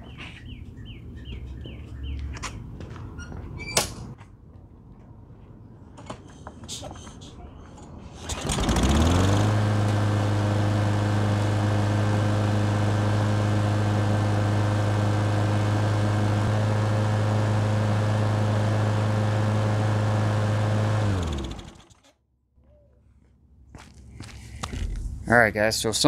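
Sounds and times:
lawn mower engine running: 8.2s - 22.1s.

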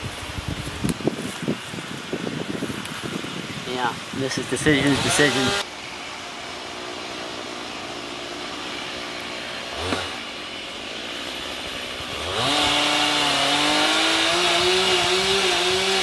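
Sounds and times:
chainsaw idling and revving: 4.1s - 16.0s.

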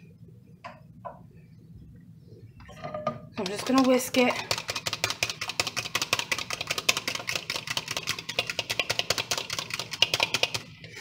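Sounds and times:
egg being whisked in a cup: 3.4s - 11.0s.

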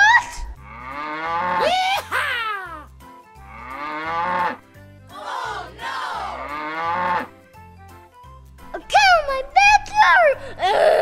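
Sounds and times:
cattle mooing: 0.6s - 1.7s, 3.5s - 4.6s, 6.3s - 7.4s.

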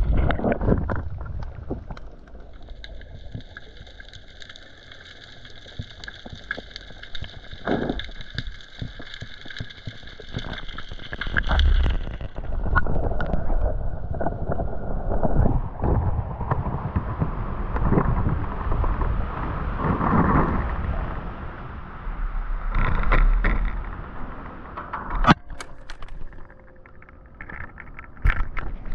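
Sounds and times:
wind rumble: 0.0s - 2.3s, 11.4s - 28.9s
water sloshing and splashing: 0.0s - 16.8s.

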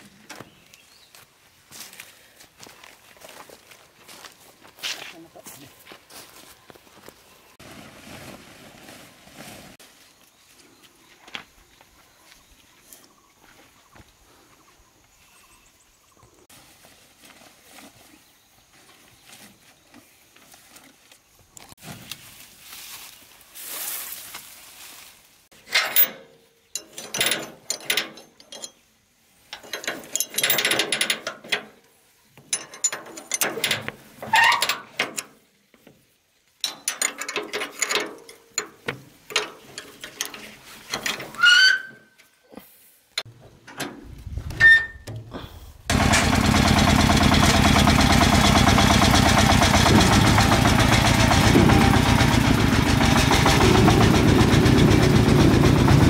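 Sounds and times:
brief rising squeaks: 41.3s - 42.2s, 44.3s - 45.2s
loud steady machine: 45.9s - 56.0s.

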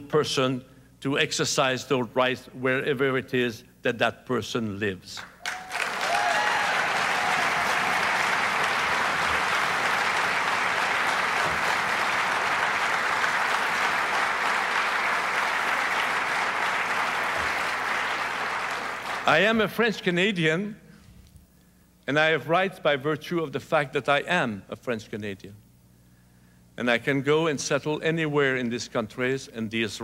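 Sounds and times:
audience applauding: 5.4s - 19.4s.

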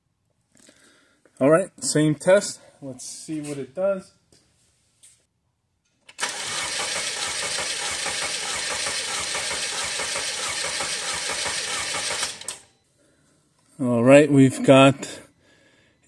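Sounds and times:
engine cranking on starter: 6.1s - 12.7s.

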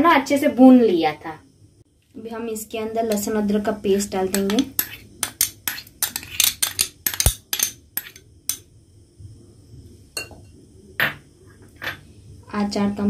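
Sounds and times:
steel spoon scraping glass bowl: 3.9s - 8.2s.

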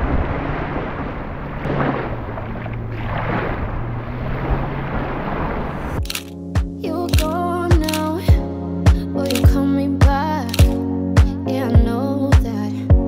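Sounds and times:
sea waves on a beach: 0.0s - 6.1s.

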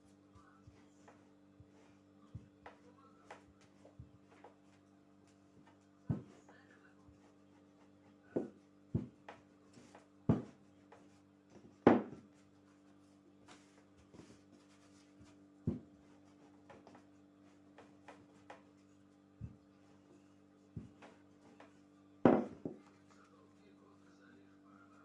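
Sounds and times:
faint steady hum: 0.0s - 25.0s
rolling pin rolling dough: 0.4s - 23.3s
rolling pin knocking on table: 6.1s - 6.4s, 8.3s - 12.3s, 15.6s - 15.9s, 20.8s - 22.8s.

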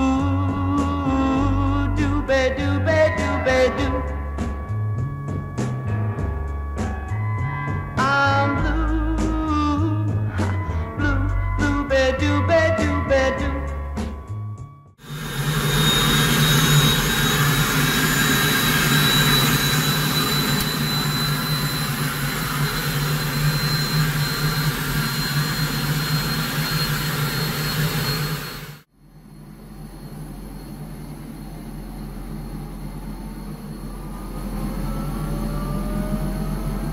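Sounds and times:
helicopter engine and rotor: 15.0s - 36.9s.

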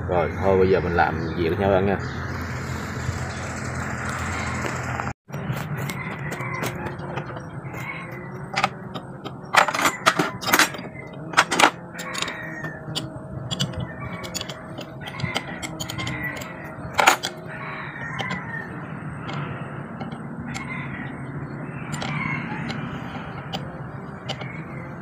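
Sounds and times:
metal clinks and clanks: 5.3s - 20.7s
wrench on metal nuts: 5.8s - 17.4s, 18.0s - 19.4s, 21.9s - 24.7s.

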